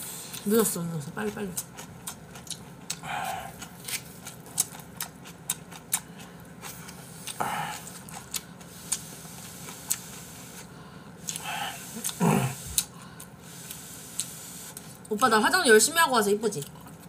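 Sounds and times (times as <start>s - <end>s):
wet chewing clicks and smacks: 1.6s - 9.0s
noodle slurping: 8.7s - 12.9s.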